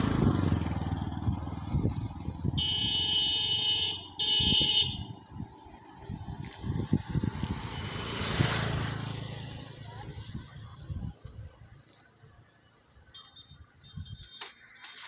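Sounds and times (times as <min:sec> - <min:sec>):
vehicle horn honking: 0:02.5 - 0:05.2.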